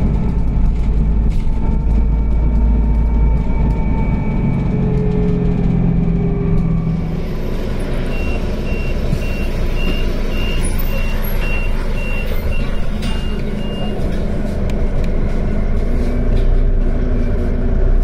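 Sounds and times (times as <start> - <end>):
city bus engine running: 0.0 - 18.0
high electronic warning beep: 8.0 - 14.0.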